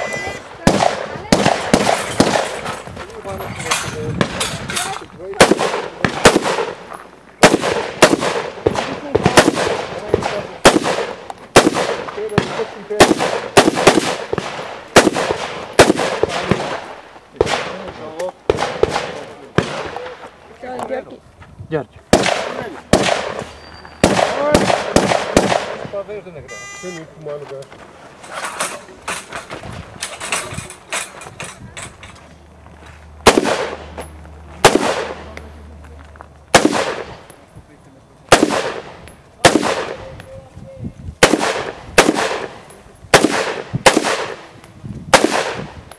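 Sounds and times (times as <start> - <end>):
rifle shots with echo: 0.6 - 2.7, 3.6 - 4.6, 5.4 - 20.2, 22.1 - 26.1, 33.2 - 34.0, 34.6 - 35.4, 36.5 - 37.3, 38.3 - 40.1, 41.2 - 44.5, 45.1 - 45.8
knocks and scuffs of movement: 2.0 - 7.4, 19.2 - 22.1, 27.0 - 36.5.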